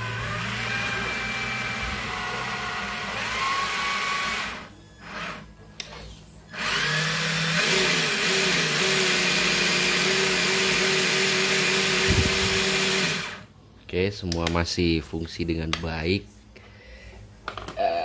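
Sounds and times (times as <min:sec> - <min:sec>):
electric motor whining: 0:06.5 - 0:13.4.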